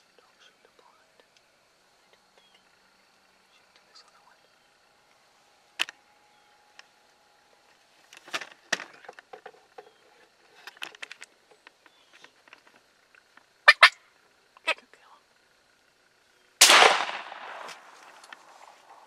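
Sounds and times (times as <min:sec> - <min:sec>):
clicks knocks and rustles of gear: 0:08.1 - 0:13.5.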